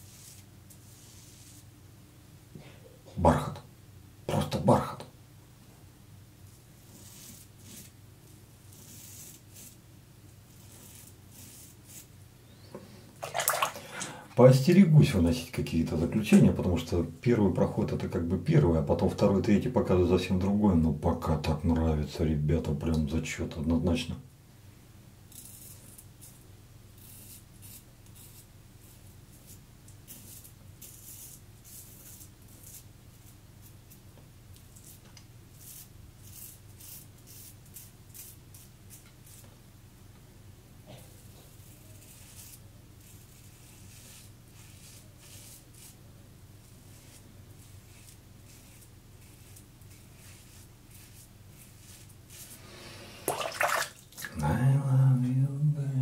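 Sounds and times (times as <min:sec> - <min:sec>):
razor scraping stubble: 0:08.6 - 0:09.8, 0:10.5 - 0:12.2, 0:25.3 - 0:26.4, 0:27.0 - 0:39.5, 0:41.1 - 0:46.0, 0:46.6 - 0:52.8.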